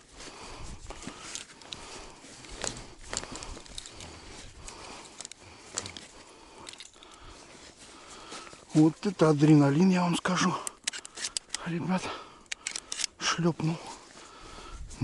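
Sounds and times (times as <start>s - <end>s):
rustling and handling noises: 0.0s - 15.0s
sharp clicks: 10.4s - 11.8s, 12.4s - 13.3s.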